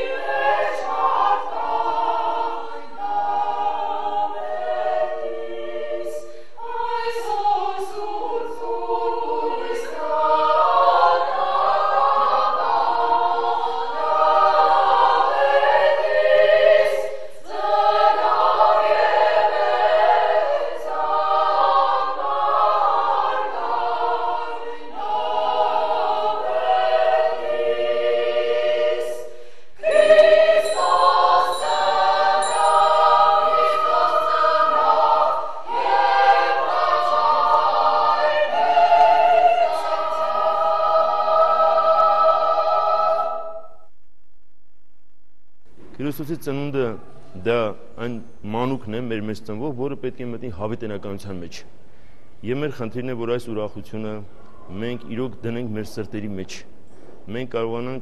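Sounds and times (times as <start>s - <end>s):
women's choir singing a cappella: 0.0s - 43.9s.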